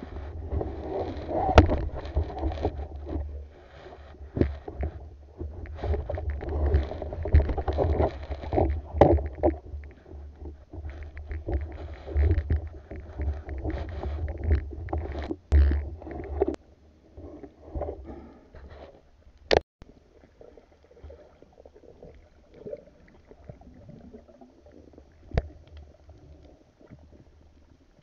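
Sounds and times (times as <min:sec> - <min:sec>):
knocks and scrapes of speargun: 0:00.0 - 0:16.6
muffled underwater rumble: 0:00.0 - 0:28.0.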